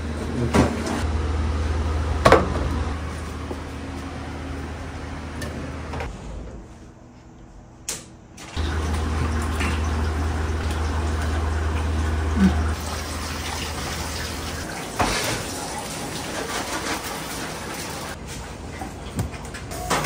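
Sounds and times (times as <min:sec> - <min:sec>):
tap water running into sink: 0:08.6 - 0:18.2.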